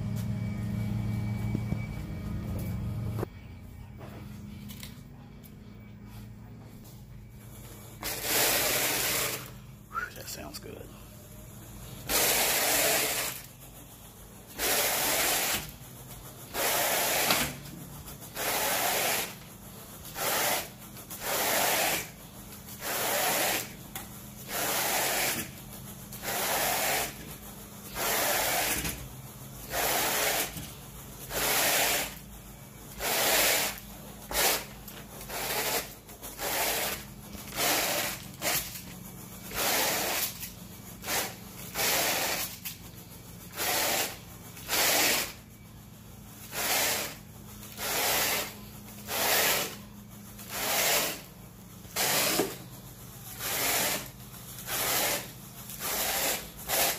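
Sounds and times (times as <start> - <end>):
carpet rake scraping swish: 8.0 - 9.5, 12.0 - 13.5, 14.6 - 15.8, 16.5 - 17.7, 18.3 - 19.4, 20.1 - 23.8, 24.4 - 32.2, 32.9 - 42.8, 43.5 - 45.4, 46.4 - 51.3, 51.9 - 52.6, 53.3 - 56.9.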